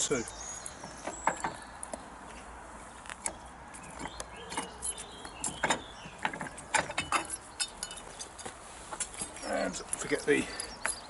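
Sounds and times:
metallic clicks and clunks of lock: 3.2s - 9.4s.

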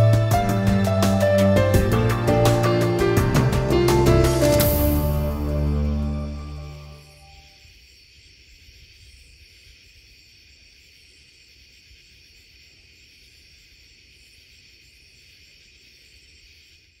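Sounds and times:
crickets trilling: 4.7s - 17.0s.

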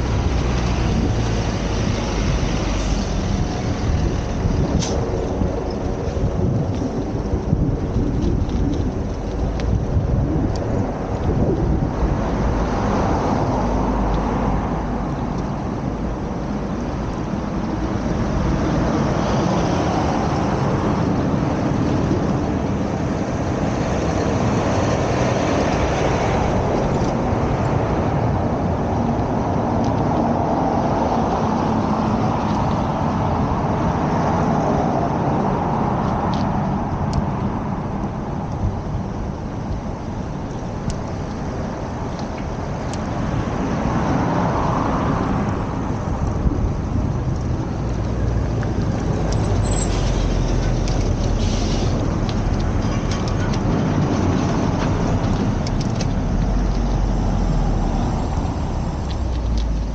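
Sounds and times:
heavy low rumble: 0.0s - 19.3s
passing vehicles rushing: 0.0s - 59.9s.

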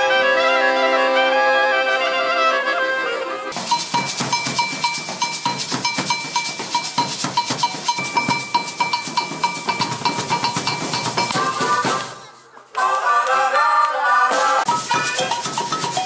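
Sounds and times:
hand percussion: 3.5s - 12.4s, 14.4s - 16.0s
ringing metallic tone: 3.6s - 11.6s
large drums with mallets: 3.6s - 12.3s, 14.7s - 16.0s.

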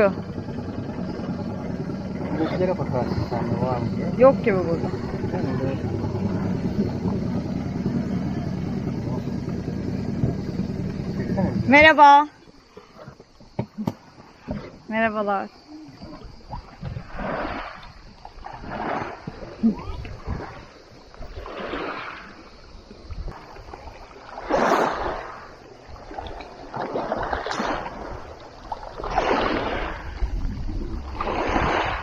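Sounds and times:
wind rumble on microphone: 0.0s - 12.6s, 15.6s - 32.0s
water splashing at pebble shore: 16.0s - 32.0s.

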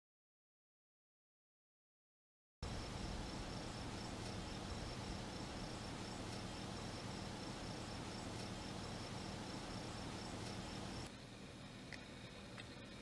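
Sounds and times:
insects chirring: 2.6s - 13.0s
low hum: 2.6s - 13.0s.

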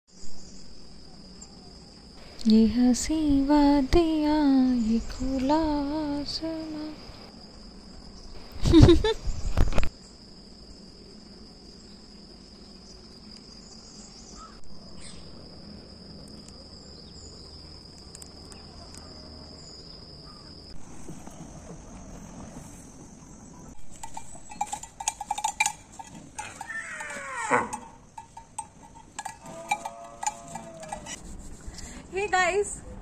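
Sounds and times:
high-pitched insect buzz: 0.1s - 21.4s, 23.8s - 32.7s
cow bell clanking: 23.9s - 31.2s.

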